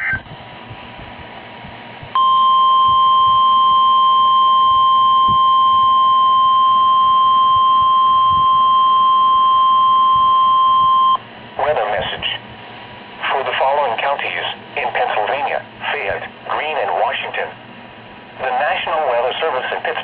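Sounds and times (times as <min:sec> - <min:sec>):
long steady high alarm tone: 0:02.2 - 0:11.3
radio hiss: 0:11.6 - 0:12.5, 0:13.2 - 0:17.6, 0:18.4 - 0:20.0.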